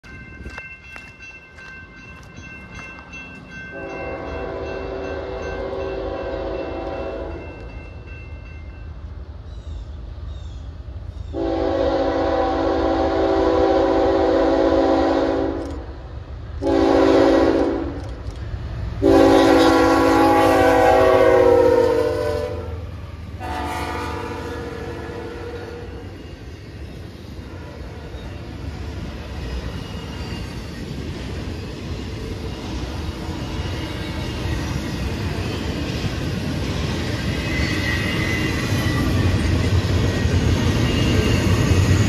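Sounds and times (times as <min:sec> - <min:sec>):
train engines rumbling: 0:00.0 - 0:42.0
locomotive air horn blasts: 0:03.8 - 0:07.4, 0:11.4 - 0:15.8, 0:16.6 - 0:18.0, 0:19.0 - 0:22.8, 0:23.4 - 0:26.0.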